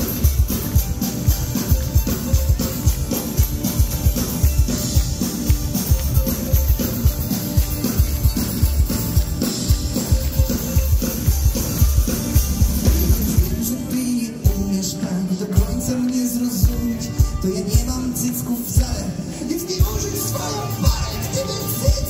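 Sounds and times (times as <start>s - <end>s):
strummed acoustic guitar: 0.0s - 16.0s
drum kit beat: 0.0s - 22.0s.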